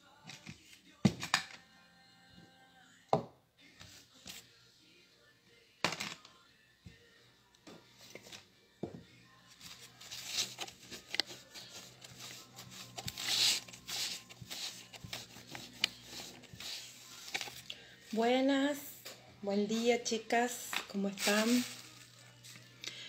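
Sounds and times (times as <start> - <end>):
rustling of materials: 9.5 - 18.3, 20.8 - 22.8.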